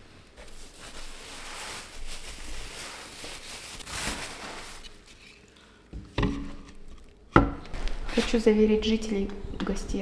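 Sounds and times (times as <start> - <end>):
plastic bag crinkling: 0.4 - 5.9.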